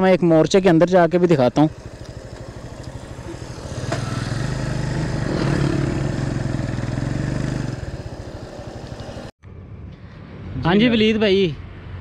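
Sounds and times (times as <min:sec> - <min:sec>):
motorcycle engine running: 0:00.9 - 0:09.3.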